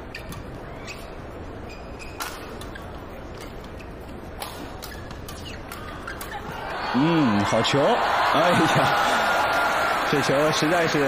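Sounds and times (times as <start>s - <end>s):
shoe squeaks on court: 0.0s - 4.2s.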